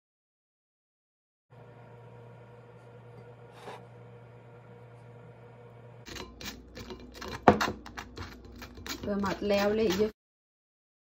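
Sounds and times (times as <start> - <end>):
spoon scraping a metal strainer: 3.5 - 3.9, 6.1 - 10.2.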